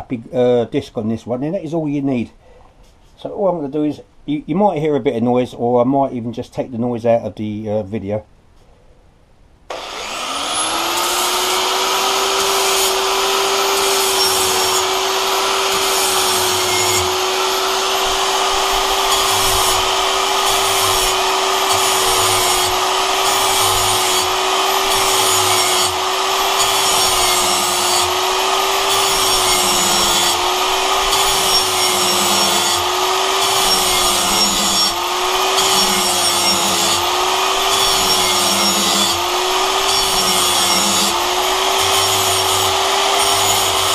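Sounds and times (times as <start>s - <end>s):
angle grinder grinding metal: 9.7s - 43.9s.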